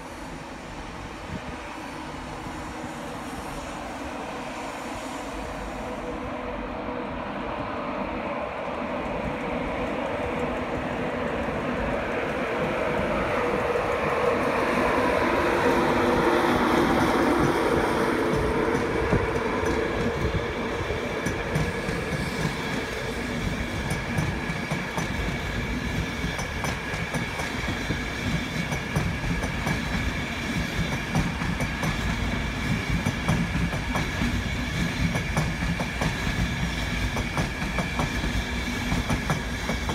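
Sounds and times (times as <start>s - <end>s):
low train rumble: 0.0s - 39.9s
train wheels clickety-clack: 8.6s - 39.9s.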